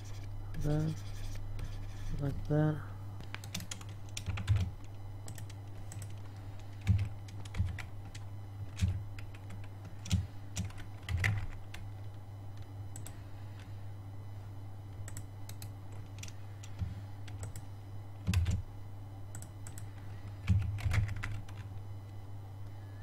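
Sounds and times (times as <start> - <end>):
low hum: 0.0 - 23.0
computer keyboard typing: 3.4 - 13.7, 15.0 - 18.6, 19.3 - 21.8.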